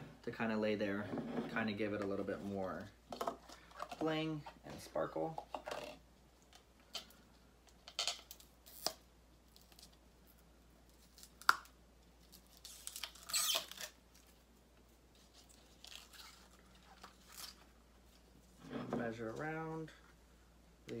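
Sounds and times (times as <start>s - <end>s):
ribbon rustling and peeling: 8.4s - 18.6s.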